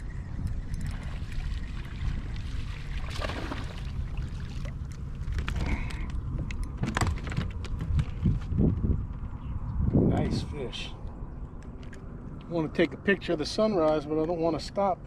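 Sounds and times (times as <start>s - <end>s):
water against kayak: 0.0s - 9.7s
wind rumble on microphone: 0.0s - 15.0s.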